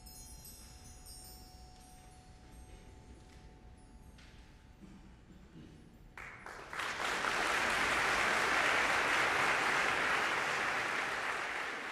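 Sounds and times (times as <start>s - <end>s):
audience applauding: 6.2s - 11.9s.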